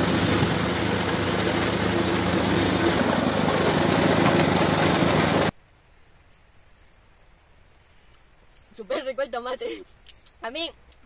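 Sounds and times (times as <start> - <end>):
sorting machine droning: 0.0 - 5.5.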